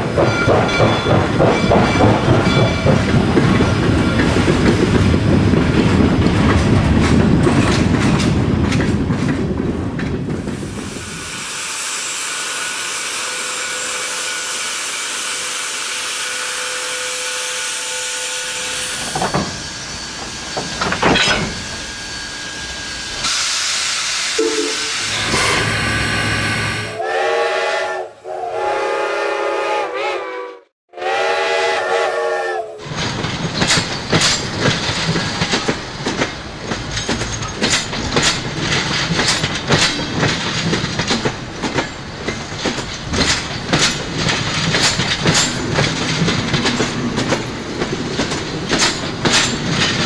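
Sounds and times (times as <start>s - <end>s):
steam train rhythmic chugging: 0.0s - 8.1s, 31.1s - 50.0s
steam hissing: 10.4s - 16.2s, 18.7s - 25.3s, 32.8s - 50.0s
sharp metal clanks: 32.8s - 50.0s.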